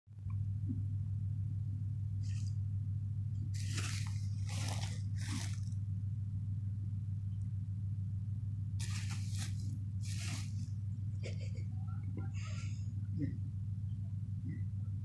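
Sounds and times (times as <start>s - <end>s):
steady low hum: 0.2s - 15.0s
dog rustling in grass: 3.6s - 5.7s, 8.8s - 10.8s.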